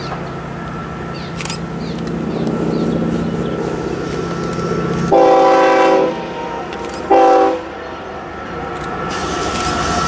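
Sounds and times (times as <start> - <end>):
train rumbling: 0.0 - 10.0
locomotive air horn: 5.1 - 7.8.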